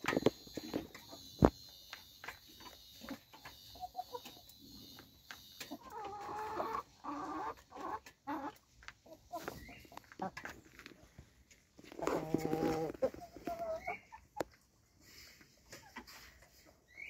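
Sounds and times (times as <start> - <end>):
chickens clucking: 3.0 - 5.0, 5.6 - 17.0.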